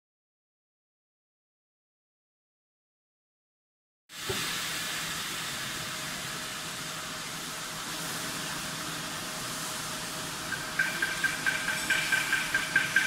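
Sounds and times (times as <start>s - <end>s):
machine hissing air: 4.1s - 13.0s.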